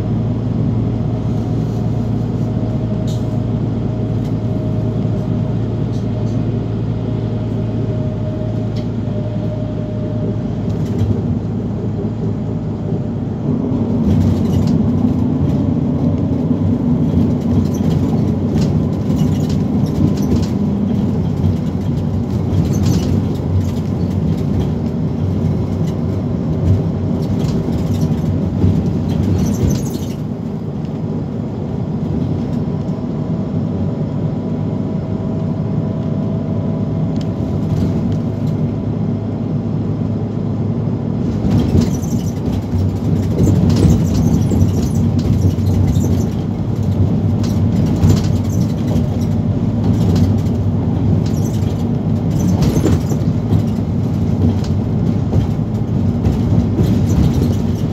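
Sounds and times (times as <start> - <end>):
bus engine and road rumble: 0.0 - 57.9
rattles: 14.0 - 15.7, 17.0 - 26.0, 26.6 - 30.3, 41.3 - 57.9.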